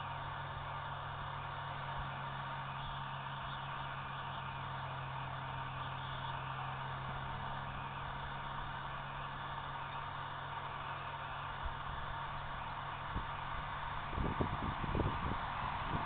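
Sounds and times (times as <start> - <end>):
constant low hum: 0.0 - 16.0.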